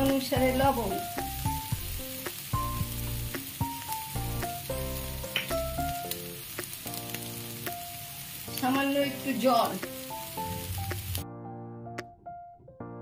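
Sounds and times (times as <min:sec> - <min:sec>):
food sizzling in oil: 0:00.0 - 0:11.2
slow background music: 0:00.0 - 0:13.0.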